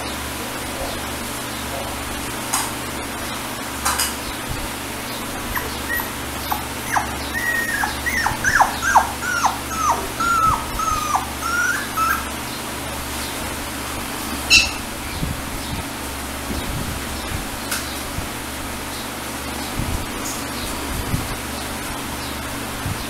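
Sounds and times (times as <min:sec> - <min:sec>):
puppy whimpering: 0:05.4 - 0:12.4.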